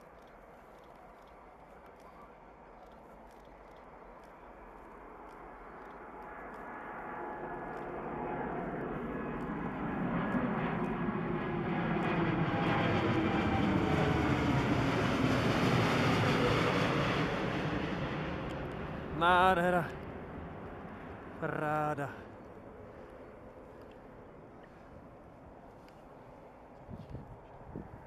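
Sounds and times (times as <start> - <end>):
jet engines roaring: 4.7 - 25.6.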